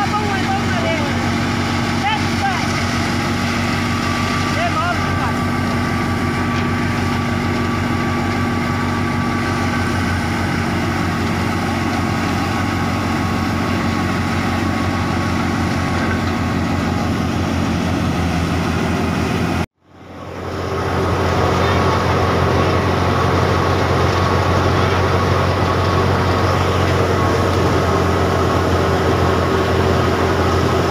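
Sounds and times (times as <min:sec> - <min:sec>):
thresher machine hum: 0:00.0 - 0:30.9
tractor engine drone: 0:00.0 - 0:30.9.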